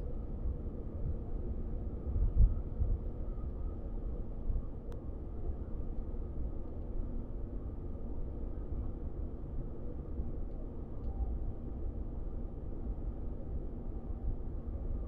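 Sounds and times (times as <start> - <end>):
faint click: 10.5 - 11.2.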